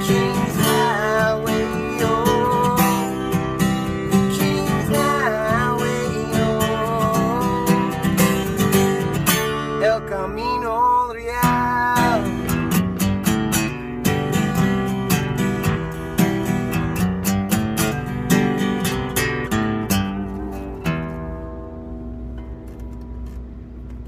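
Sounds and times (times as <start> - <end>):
man singing: 0.0 - 8.6, 9.7 - 12.5
acoustic guitar strummed: 0.0 - 24.0.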